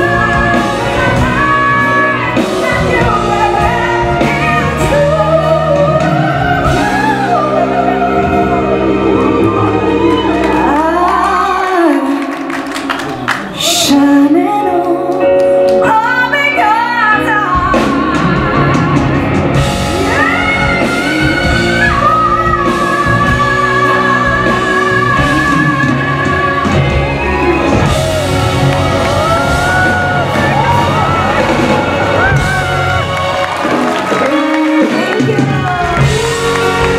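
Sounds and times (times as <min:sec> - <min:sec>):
woman singing a pop ballad: 0:00.0 - 0:12.6, 0:13.6 - 0:28.2
live band playing: 0:00.0 - 0:36.9.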